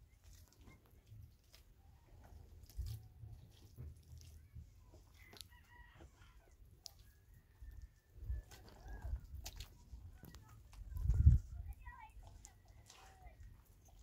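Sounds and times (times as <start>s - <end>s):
faint chicken calls: 1.8s - 10.5s, 12.3s - 14.0s.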